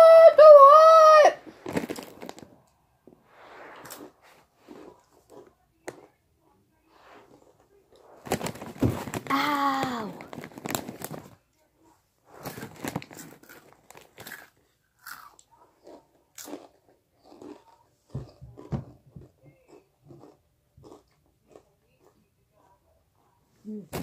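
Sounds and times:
chips crunching: 1.5s - 2.6s, 7.9s - 11.4s, 12.4s - 18.7s, 19.7s - 22.2s.

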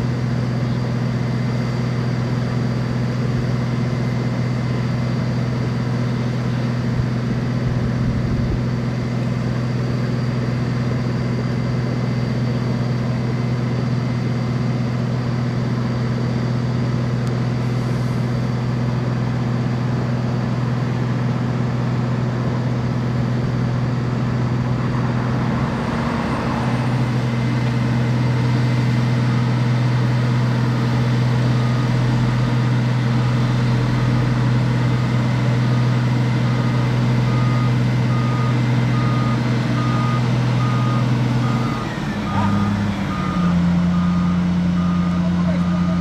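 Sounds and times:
heavy diesel engines droning: 0.0s - 46.0s
reversing alarm beeping: 22.9s - 46.0s.

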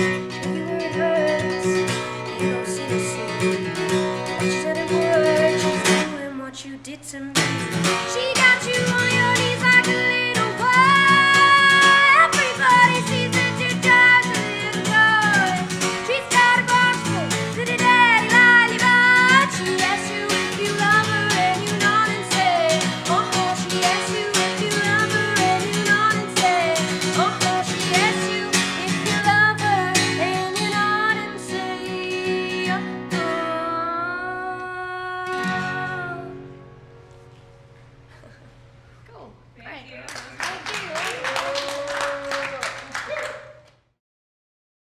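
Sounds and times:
strummed acoustic guitar: 0.0s - 6.5s, 7.4s - 38.8s
woman singing: 0.0s - 36.5s.

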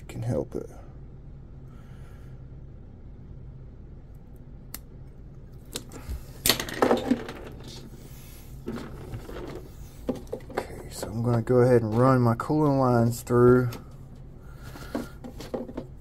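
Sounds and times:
steady low hum: 0.0s - 16.0s
knocks and rattles: 6.5s - 7.9s, 8.6s - 12.1s, 14.8s - 16.0s.

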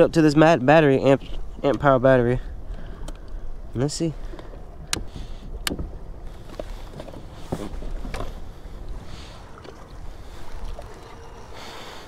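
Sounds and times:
water washing against kayak hull: 4.2s - 12.0s.

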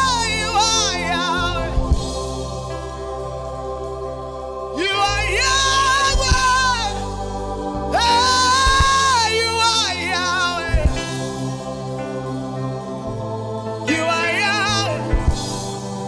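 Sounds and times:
man singing into a microphone: 0.0s - 1.8s, 4.8s - 7.0s, 7.9s - 11.2s, 13.9s - 15.2s
band sustained chords and bass: 0.0s - 16.0s.

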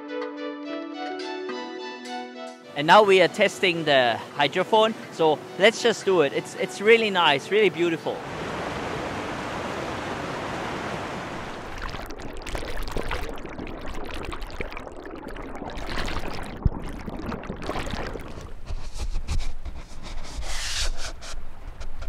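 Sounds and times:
bubbling turbulent water underwater: 11.3s - 18.7s.

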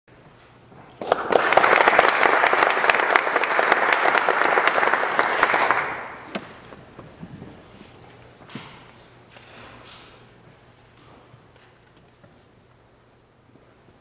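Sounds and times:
audience applauding: 1.0s - 6.8s.

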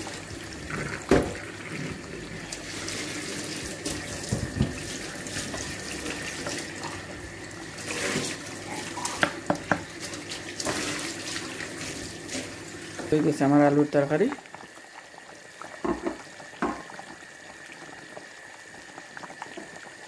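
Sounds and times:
water pouring into a pot: 0.0s - 20.0s
wooden spatula knocking on pot: 9.2s - 9.9s.

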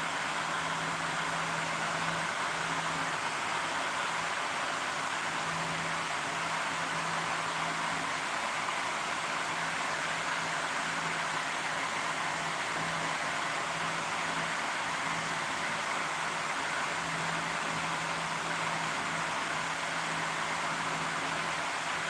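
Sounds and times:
fan-like hiss: 0.0s - 22.0s.

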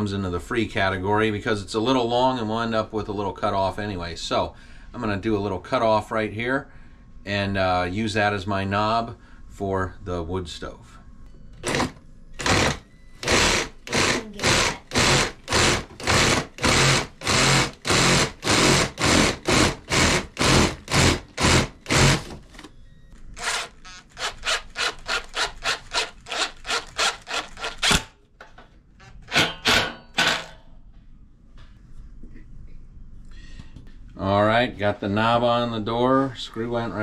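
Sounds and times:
hand saw cutting wood: 11.6s - 22.4s, 23.4s - 28.1s.

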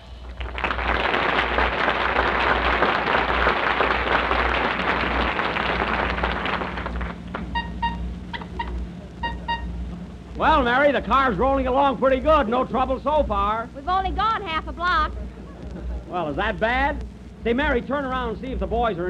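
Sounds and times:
audience applauding: 0.0s - 8.6s
car horn sound effect: 7.4s - 10.0s.

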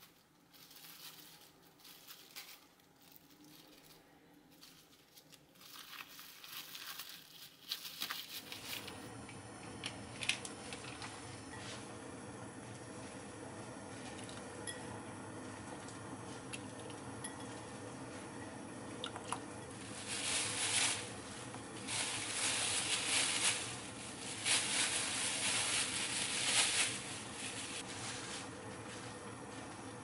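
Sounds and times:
plastic bag rustling: 0.0s - 9.1s, 19.6s - 30.0s.

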